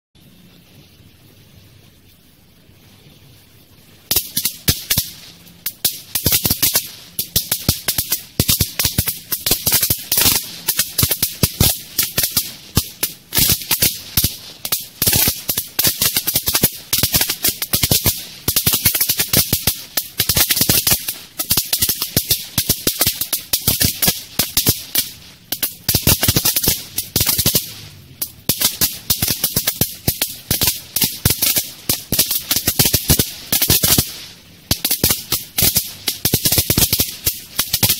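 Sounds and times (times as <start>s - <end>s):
firecracker string crackling: 0.2s - 37.9s.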